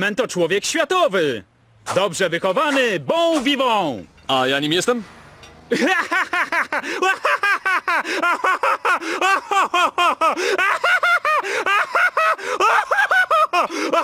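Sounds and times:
man laughing: 5.7 - 14.0.

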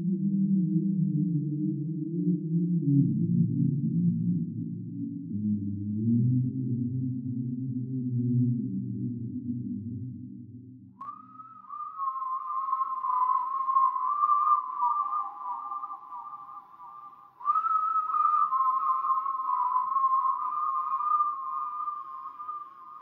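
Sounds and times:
whistled melody in two parts: 10.9 - 23.0.

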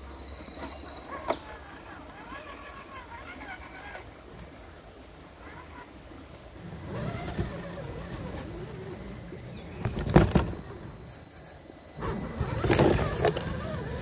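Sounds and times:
electric motor whirring: 5.4 - 14.0.

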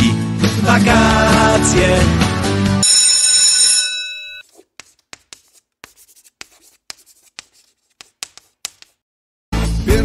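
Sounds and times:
ringing bell tone: 2.8 - 4.4
chalk scratching on blackboard: 4.4 - 9.0.

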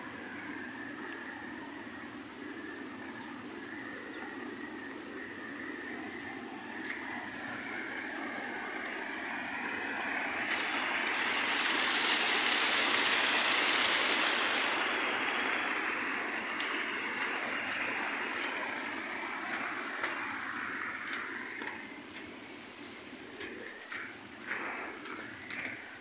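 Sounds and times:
water cascading over stone wall: 7.6 - 22.3.

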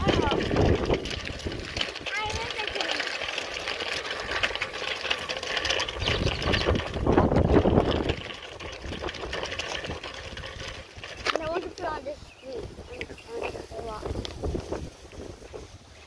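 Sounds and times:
fast clicking rattle: 0.0 - 12.2
wind buffeting microphone: 0.0 - 16.0.

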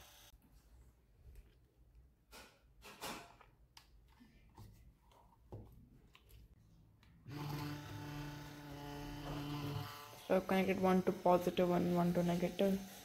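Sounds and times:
electric motor humming: 0.0 - 0.3, 7.3 - 13.0.

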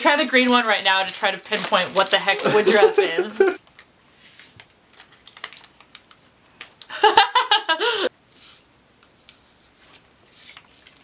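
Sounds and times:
packet crinkling: 0.0 - 6.9.

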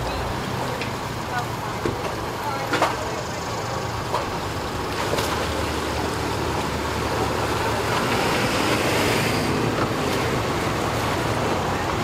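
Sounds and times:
engine idling: 0.0 - 8.1
outdoor noise: 0.0 - 12.0.

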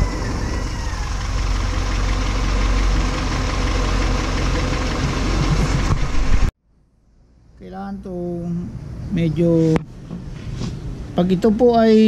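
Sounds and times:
car engine idling: 0.0 - 7.6.

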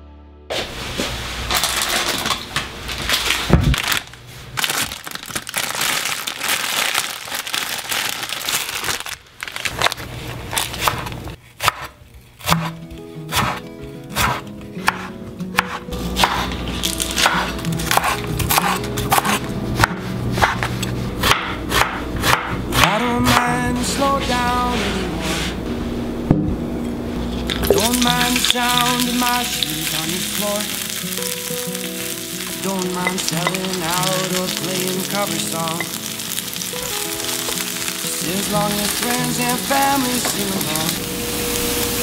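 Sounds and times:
music: 0.0 - 0.6, 12.5 - 25.7, 27.6 - 42.0
knife chopping on wooden board: 10.8 - 16.5, 17.2 - 23.5.

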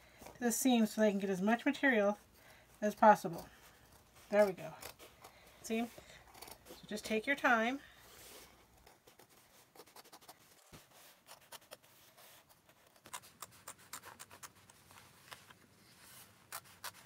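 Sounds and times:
scissors cutting denim: 16.5 - 17.0.

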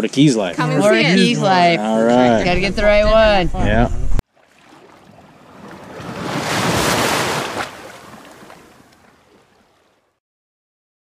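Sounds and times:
wave washing onto beach: 4.4 - 10.1.

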